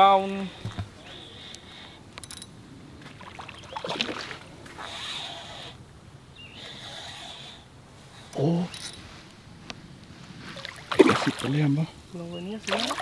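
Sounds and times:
water splashing: 3.0s - 5.3s, 10.5s - 11.9s, 12.6s - 13.0s.

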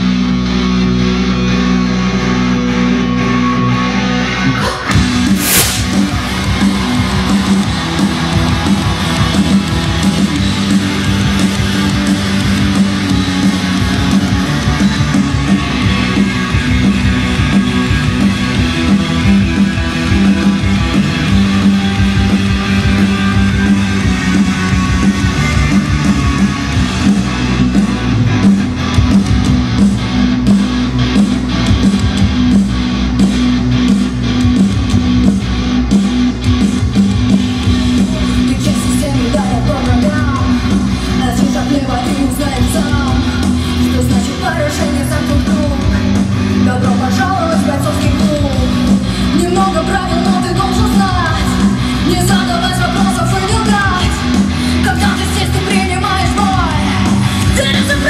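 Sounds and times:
loud electric guitar: 0.0s - 58.0s
rock band playing live: 0.0s - 58.0s
woman singing: 38.3s - 58.0s.

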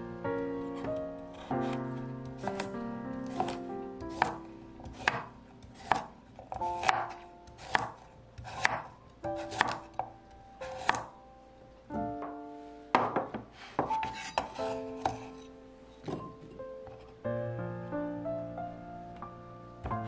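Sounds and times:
light background music: 0.0s - 20.0s
knife chopping carrot on board: 2.4s - 10.1s, 10.7s - 11.1s.

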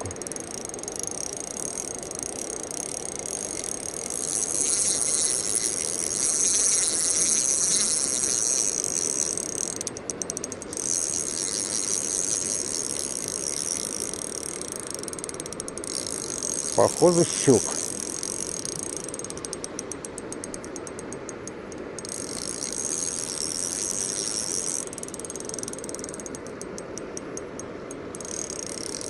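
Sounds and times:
fishing reel drag clicking: 0.0s - 29.0s.

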